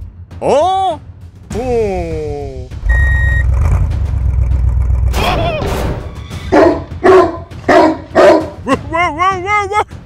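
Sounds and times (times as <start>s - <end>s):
low rumble: 2.7s - 5.5s
dog barking: 6.5s - 8.6s.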